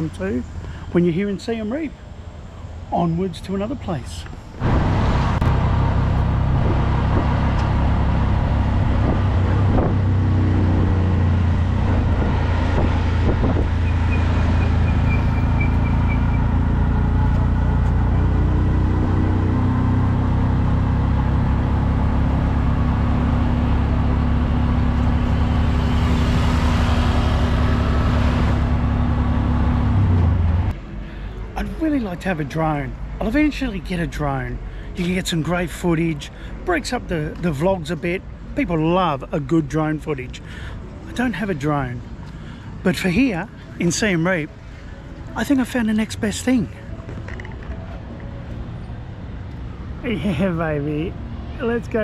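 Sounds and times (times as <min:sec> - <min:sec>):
road noise: 0:00.0 - 0:52.0
vehicle engine running: 0:04.5 - 0:30.7.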